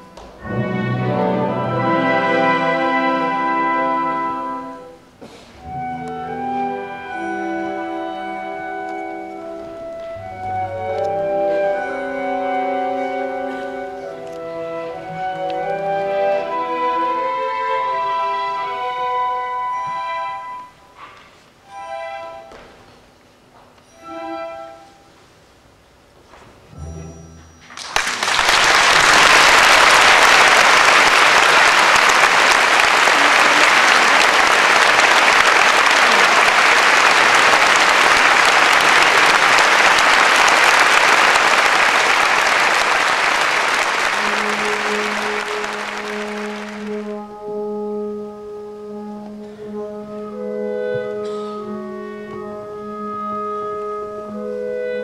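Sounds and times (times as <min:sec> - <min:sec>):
orchestra holding long notes: 0:00.0 - 0:21.0, 0:21.6 - 0:22.7, 0:23.8 - 0:25.2, 0:26.7 - 0:55.0
audience applauding: 0:27.7 - 0:47.2.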